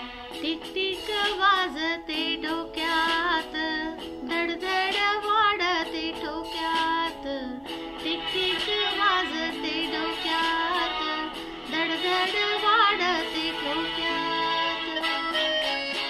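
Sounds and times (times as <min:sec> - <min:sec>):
woman singing with vibrato: 0:00.3 - 0:16.0.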